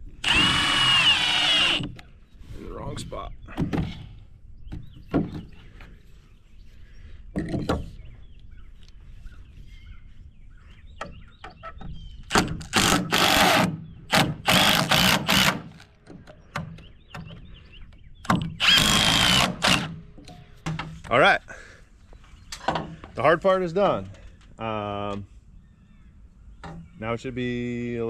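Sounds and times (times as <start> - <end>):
impact driver driving screws: 0.2 - 2.0, 12.3 - 15.9, 18.3 - 20.0.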